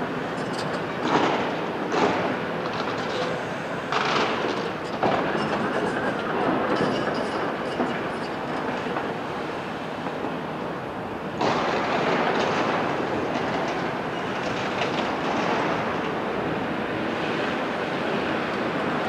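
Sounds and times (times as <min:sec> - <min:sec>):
excavator engine and hydraulics: 0:00.0 - 0:19.0
excavator clattering: 0:00.2 - 0:09.2, 0:11.4 - 0:16.3.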